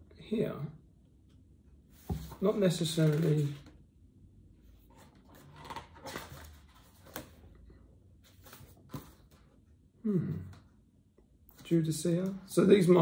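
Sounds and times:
pages being turned: 2.0s - 3.7s, 4.9s - 7.5s, 8.2s - 9.4s.

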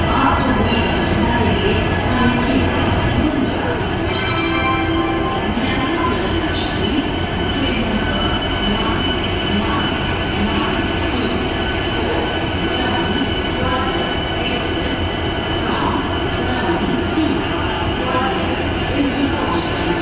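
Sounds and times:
train wheels rumbling on rails: 5.2s - 20.0s.

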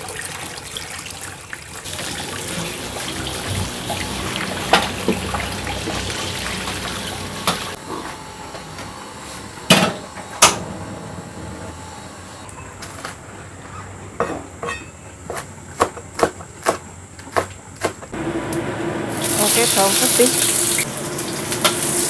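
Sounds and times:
tap water running into wok: 0.0s - 7.8s, 19.1s - 22.0s.

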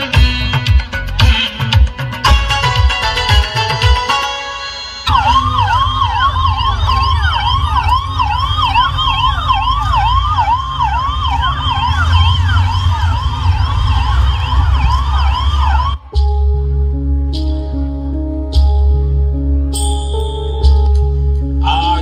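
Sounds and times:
soft music: 0.0s - 5.8s, 16.0s - 22.0s
siren wailing over loudspeakers: 4.6s - 16.3s.

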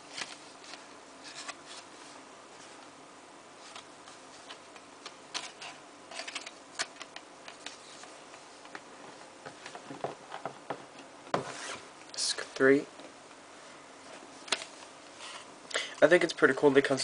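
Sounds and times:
paper and card rustling: 0.1s - 2.9s, 3.6s - 8.8s.

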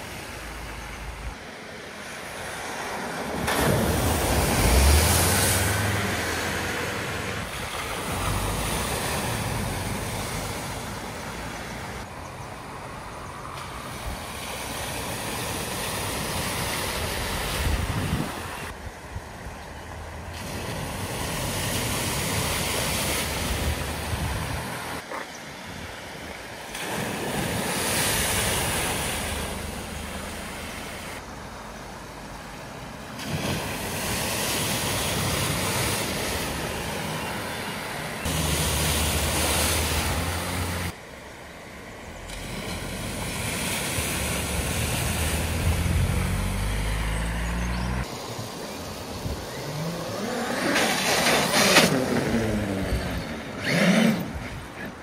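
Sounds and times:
river rushing: 0.0s - 19.4s, 20.0s - 55.0s
water splashing off wheels: 2.0s - 12.1s, 20.2s - 25.1s, 26.4s - 55.0s
car engines running: 36.9s - 43.4s, 44.0s - 48.2s.

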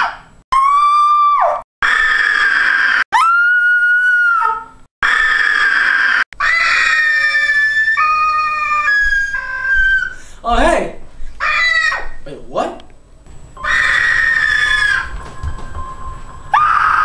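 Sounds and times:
high-pitched screams: 0.0s - 10.2s, 13.6s - 17.0s.

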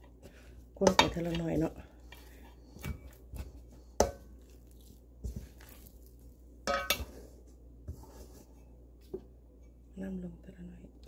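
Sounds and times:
spoon stirring batter in metal bowl: 0.0s - 8.6s.

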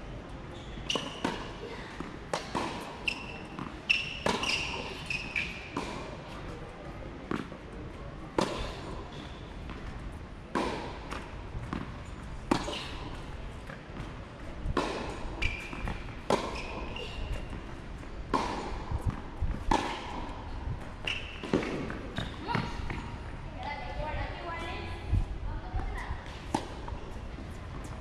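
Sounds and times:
tennis ball bouncing on court: 0.9s - 6.1s, 7.3s - 7.6s, 8.4s - 8.8s, 9.6s - 23.4s, 25.7s - 27.0s
tennis ball struck by racket: 3.6s - 6.1s, 8.4s - 8.9s, 10.5s - 17.0s, 18.3s - 20.4s, 21.1s - 23.0s.

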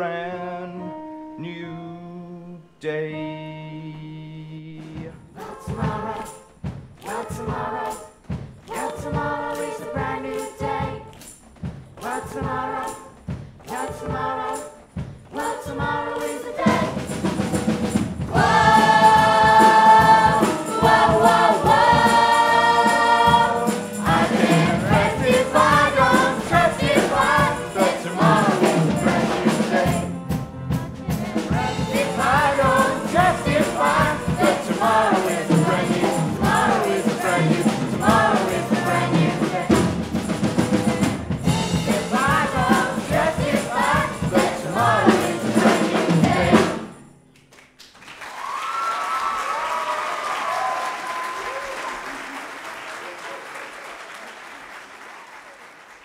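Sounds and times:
musical accompaniment: 0.0s - 47.4s
children's chorus singing: 13.7s - 17.2s, 18.3s - 30.1s, 31.2s - 39.9s, 40.6s - 47.0s.

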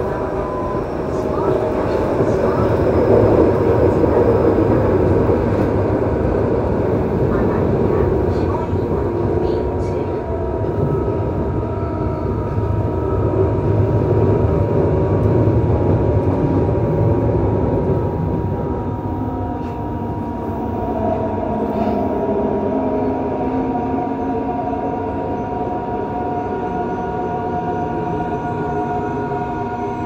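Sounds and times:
train wheels rumbling on rail: 0.0s - 30.0s.

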